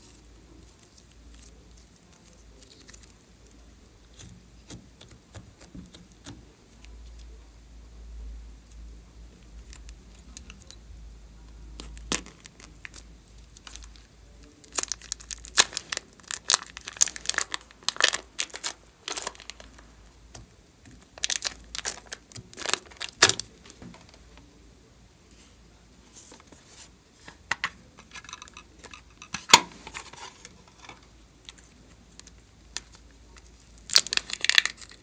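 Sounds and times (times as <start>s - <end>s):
plastic bag crinkling and tearing: 11.8s - 24.1s, 32.8s - 35.0s.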